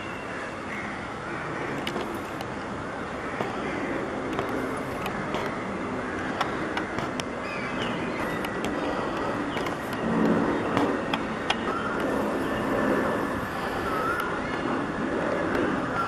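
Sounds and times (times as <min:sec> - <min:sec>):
road traffic rumble: 0:00.0 - 0:16.0
sharp clicks: 0:06.2 - 0:07.4, 0:08.2 - 0:12.2.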